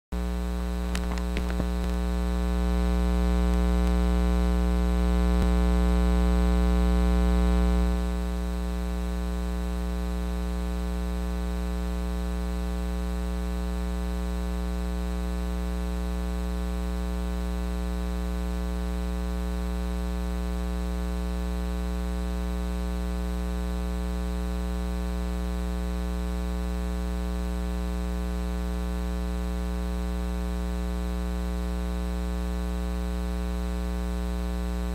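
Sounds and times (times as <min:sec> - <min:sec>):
electrical mains hum: 0:00.2 - 0:08.3.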